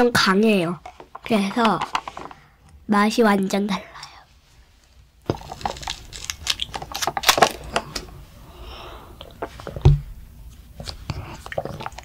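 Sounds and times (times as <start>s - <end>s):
child drinking and chewing: 5.2s - 12.0s.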